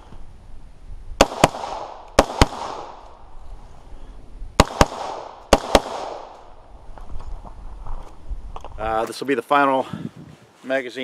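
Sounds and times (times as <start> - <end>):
rifle shots with echo: 1.2 - 3.0, 4.6 - 6.3.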